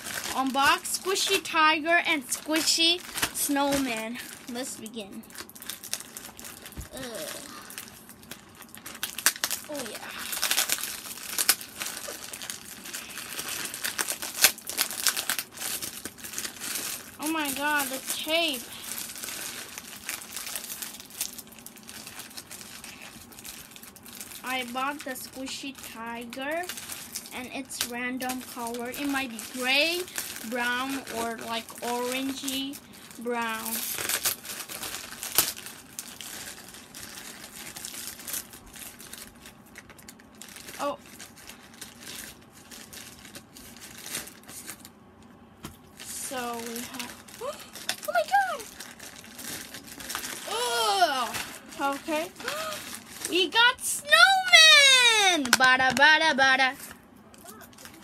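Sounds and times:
plastic bag crinkling: 0.0s - 58.0s
plastic bag snapping: 2.3s - 4.6s, 5.3s - 24.3s, 33.5s - 44.9s, 46.5s - 53.4s.

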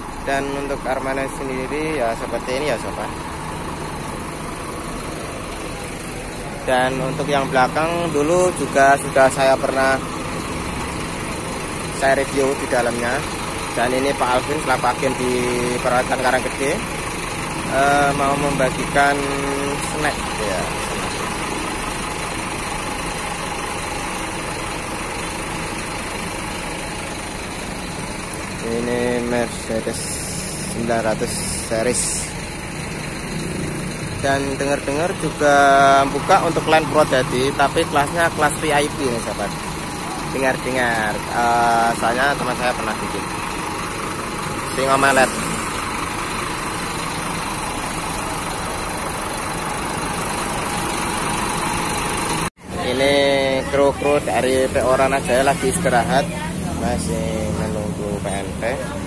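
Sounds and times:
diesel coach engine idling: 0.0s - 59.0s.

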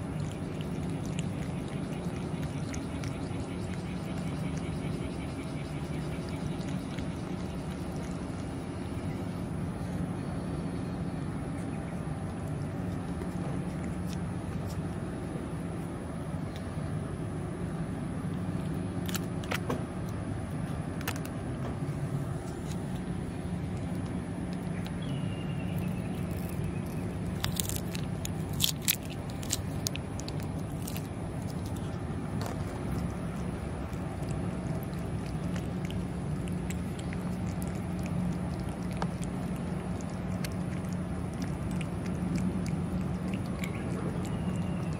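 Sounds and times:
low mechanical hum: 0.0s - 44.9s
plastic pouch crinkling: 25.8s - 31.8s.

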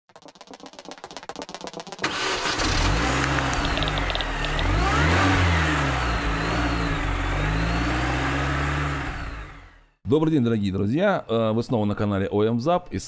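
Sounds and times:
car engine revving: 2.0s - 10.0s.

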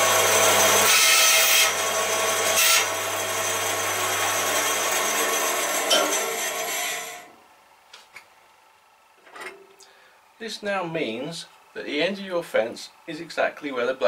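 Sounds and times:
band saw cutting wood: 0.0s - 7.3s.

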